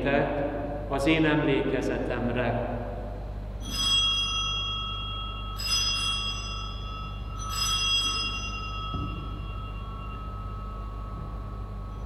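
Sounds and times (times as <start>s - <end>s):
bell ringing: 3.6s - 12.0s.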